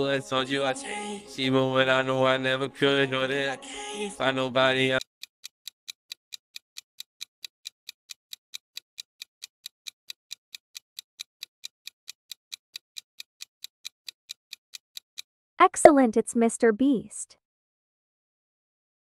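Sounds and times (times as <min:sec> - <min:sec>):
clock ticking: 0:05.0 - 0:16.1.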